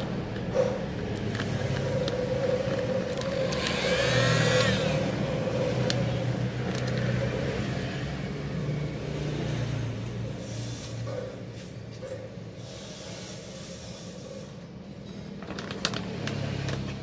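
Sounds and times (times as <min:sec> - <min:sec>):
motor vehicle hum: 0:00.0 - 0:12.0, 0:15.0 - 0:17.0
engine rising and falling: 0:01.2 - 0:09.9.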